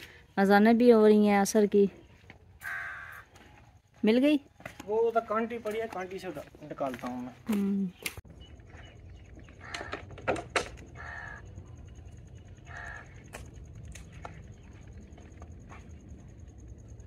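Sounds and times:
crow cawing: 2.6 - 3.5, 9.6 - 10.2, 11.0 - 11.6, 12.6 - 13.4.

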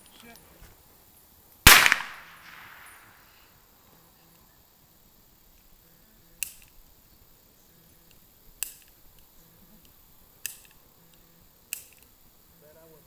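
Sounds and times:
sharp snapping clicks: 6.4 - 6.8, 8.0 - 12.1.

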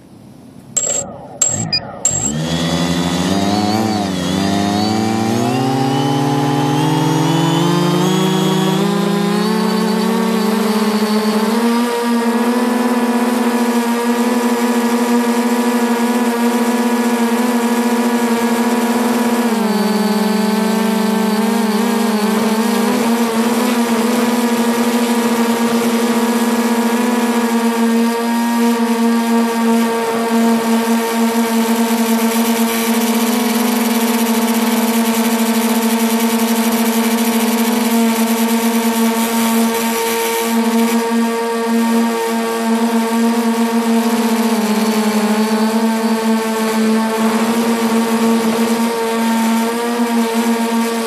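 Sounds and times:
drone motors humming: 0.0 - 51.0.

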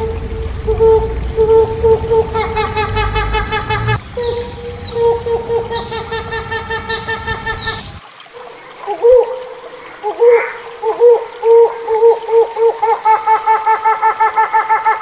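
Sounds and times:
hornbill honking calls: 0.0 - 8.0
hornbill looping hoots: 0.0 - 8.0, 10.1 - 15.0
background hiss: 0.0 - 15.0.

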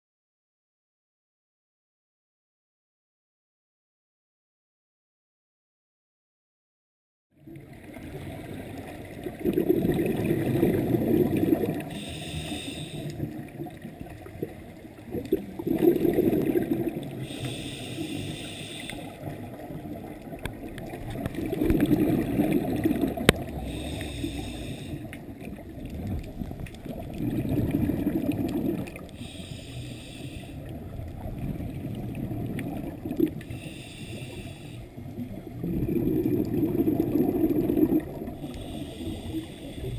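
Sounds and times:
exhaled bubbles rumbling underwater: 7.4 - 39.9
regulator inhale hiss: 11.8 - 13.4, 17.1 - 19.3, 23.5 - 25.3, 29.0 - 30.8, 33.4 - 35.0, 38.3 - 39.9.

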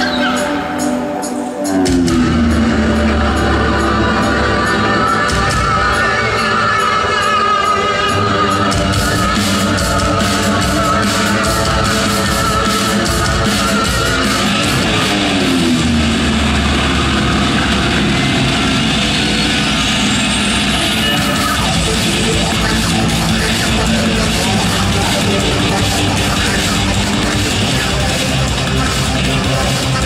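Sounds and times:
loud rock music with guitar: 0.0 - 30.0.

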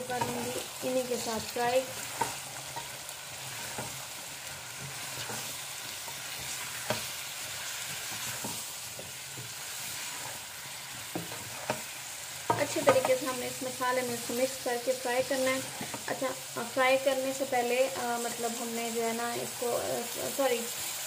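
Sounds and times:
vegetables sizzling in oil: 0.0 - 21.0
spatula knocking against pan: 12.5 - 13.2.

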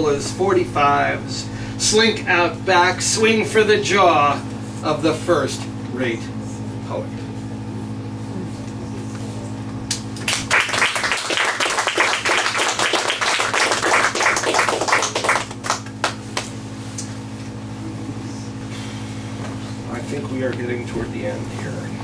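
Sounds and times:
steady low hum: 0.0 - 22.0
audience applauding: 10.2 - 16.5.

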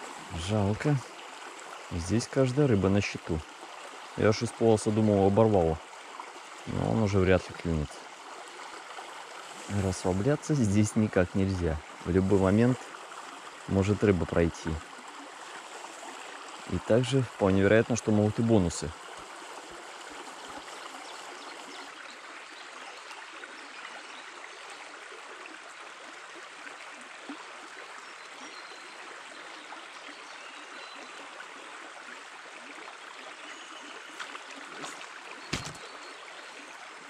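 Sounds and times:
stream babbling: 0.0 - 37.0
brief knocks: 34.2 - 35.9.

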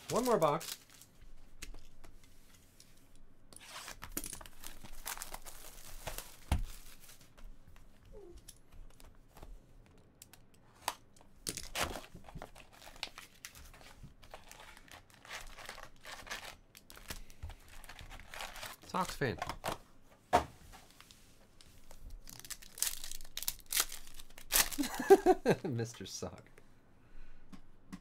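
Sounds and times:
plastic wrap crinkling and tearing: 0.0 - 1.1, 3.9 - 7.2, 11.6 - 19.2, 21.8 - 25.4.

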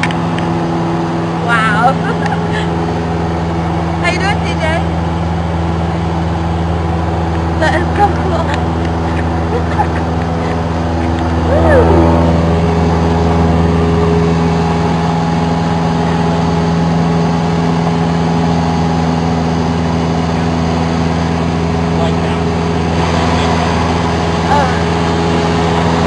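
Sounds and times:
airplane engine drone in cabin: 0.0 - 26.0.

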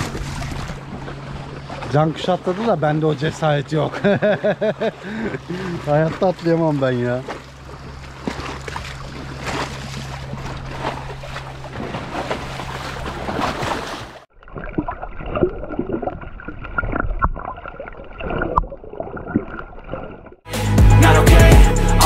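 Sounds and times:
water sloshing against rocks: 0.0 - 20.5
underwater bubbling: 4.9 - 20.5.

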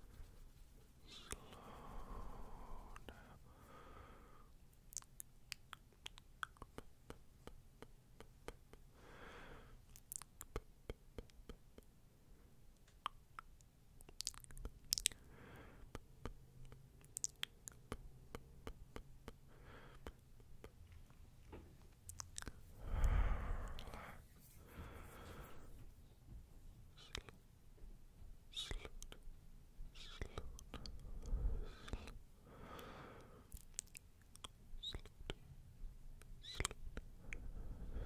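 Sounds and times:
soft breath: 0.0 - 4.6, 8.9 - 9.9, 15.1 - 16.0, 19.4 - 20.7, 22.4 - 26.0, 30.0 - 33.6, 37.2 - 38.0.

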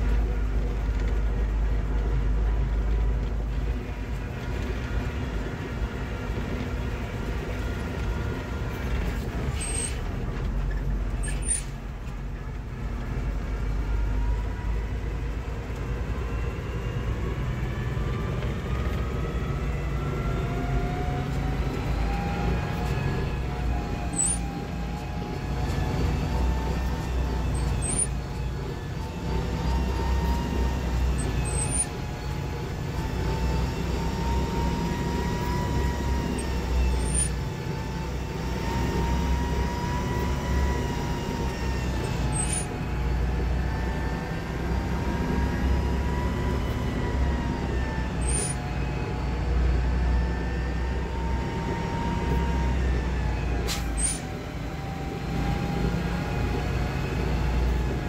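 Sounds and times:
engine whine: 0.0 - 58.0
tractor diesel engine running: 0.0 - 58.0
faint high chirp: 24.1 - 24.4, 27.6 - 28.2.

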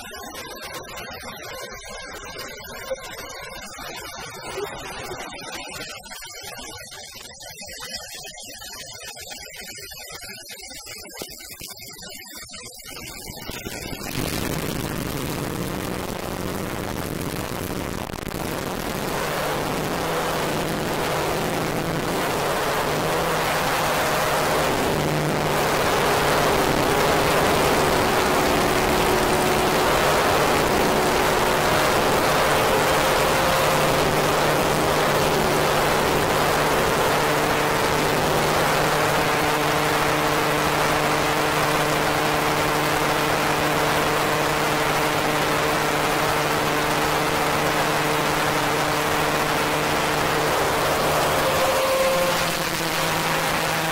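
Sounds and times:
dark ambient synth drone: 13.6 - 53.9.

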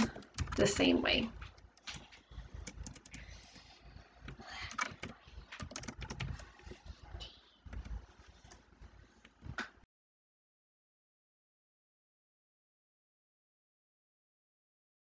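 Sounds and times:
keyboard typing clicks: 0.0 - 6.8.

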